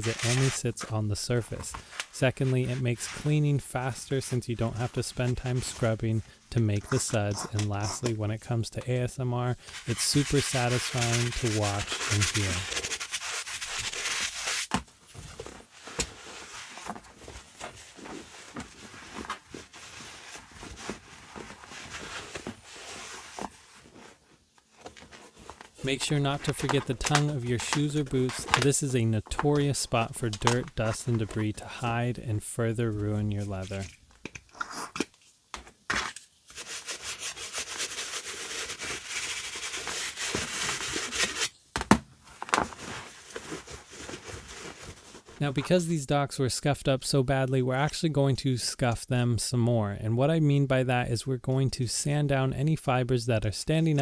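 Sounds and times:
scrubbing on leather: 9.8 - 14.7.

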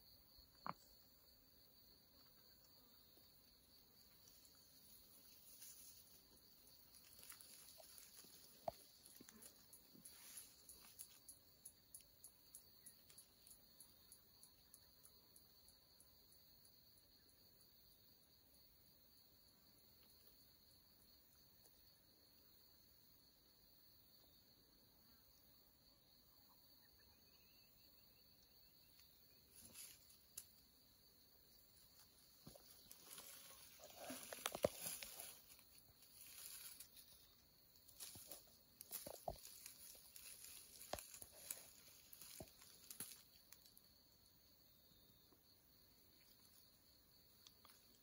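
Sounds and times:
insects chirring: 0.0 - 48.0
rustling on dry leaves: 4.1 - 11.3, 29.5 - 30.6, 32.0 - 43.8.

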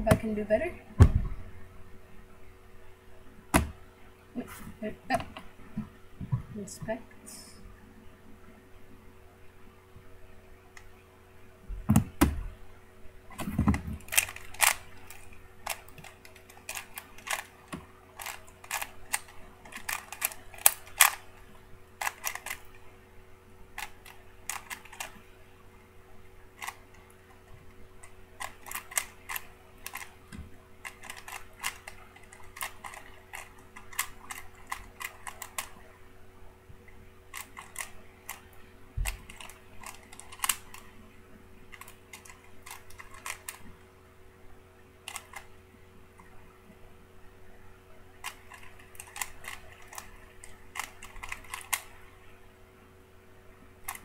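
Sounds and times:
low thumps: 1.0 - 1.5
plastic puzzle cube clicking: 13.4 - 21.3, 22.0 - 22.8, 23.8 - 25.2, 26.6 - 26.8, 28.0 - 30.2, 30.8 - 35.8, 37.3 - 40.9, 41.7 - 43.7, 45.1 - 45.5, 48.2 - 51.9.

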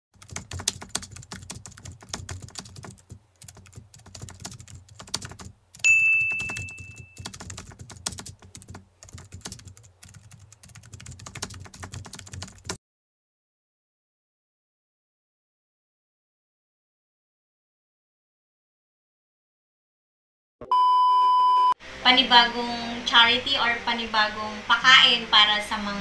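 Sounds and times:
typing key clicks: 0.2 - 12.8
bell ding: 5.9 - 7.2.

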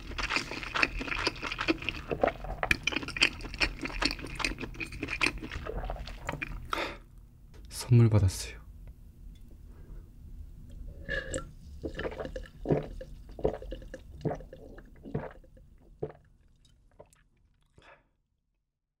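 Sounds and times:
person gulping a drink: 0.0 - 6.9, 11.0 - 18.0.

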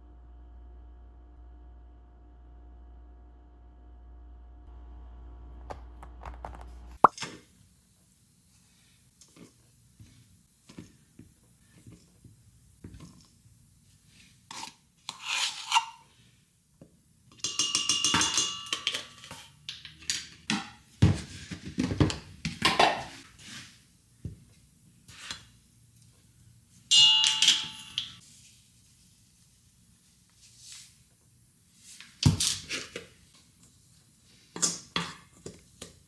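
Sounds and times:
metal bowl ringing: 17.4 - 19.0, 26.9 - 28.2.

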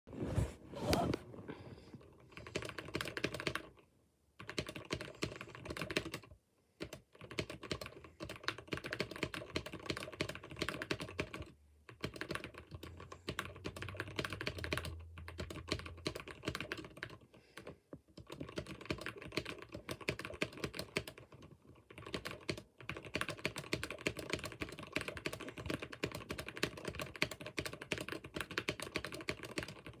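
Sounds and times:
keyboard typing clicks: 4.4 - 30.0.

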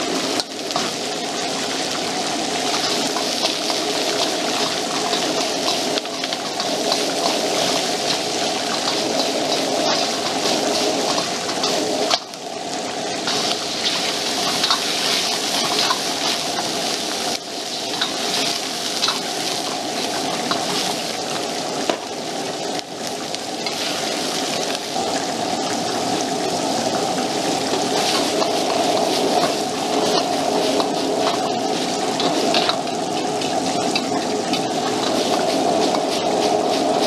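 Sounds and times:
gas burner rushing: 0.0 - 37.0
vegetables sizzling in wok: 0.0 - 37.0
metal ladle scraping wok: 2.6 - 12.4, 13.2 - 21.2, 23.6 - 25.0, 27.7 - 37.0.

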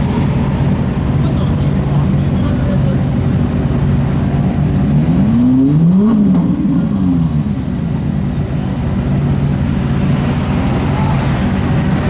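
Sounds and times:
car engine idling and revving: 0.0 - 12.0.

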